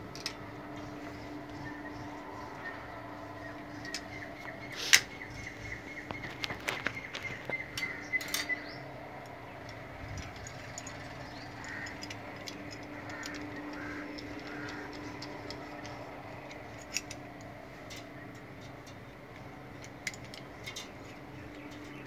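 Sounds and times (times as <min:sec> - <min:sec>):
steady background hum: 0:00.0 - 0:22.0
small metallic clicks: 0:00.1 - 0:00.9, 0:03.7 - 0:22.0.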